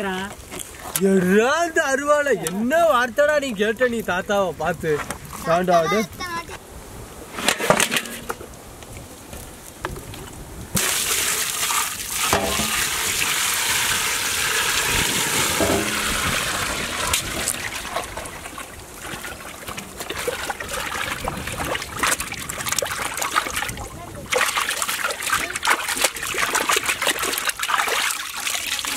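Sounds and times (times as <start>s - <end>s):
water pouring into metal vessel: 10.8s - 28.9s
hands sloshing fish in water: 16.6s - 28.9s.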